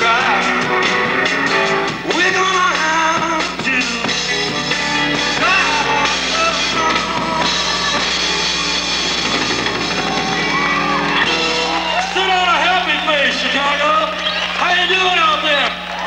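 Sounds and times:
person singing: 0.0 - 0.9, 2.1 - 8.4
rock band playing: 0.0 - 16.0.

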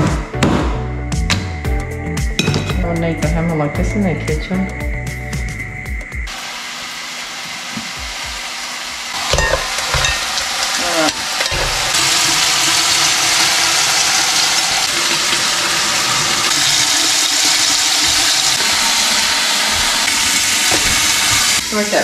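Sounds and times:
loud steady sizzling: 6.2 - 22.0.

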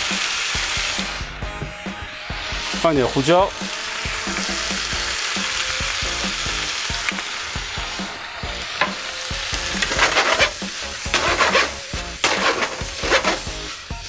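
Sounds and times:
shrimp sizzling in a frying pan: 0.0 - 14.0
wooden spatula scraping a pan: 8.8 - 13.8.

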